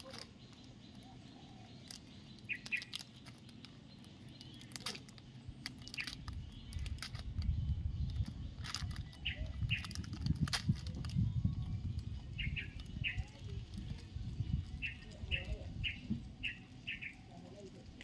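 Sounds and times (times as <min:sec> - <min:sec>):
bird chirps: 0:00.0 - 0:10.4, 0:11.2 - 0:17.4
plastic wrapper crinkling: 0:01.8 - 0:15.1.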